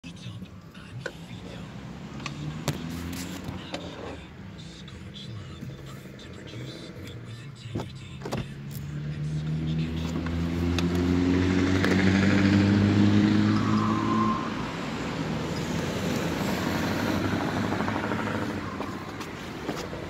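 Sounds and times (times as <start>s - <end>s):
passing traffic: 0.0s - 20.0s
truck exhaust pulling away: 8.9s - 20.0s.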